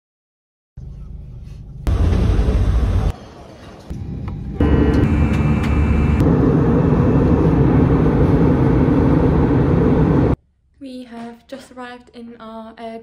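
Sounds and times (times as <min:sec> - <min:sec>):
jet engines roaring in cabin: 0:01.8 - 0:10.4
high engine whine: 0:01.9 - 0:10.4.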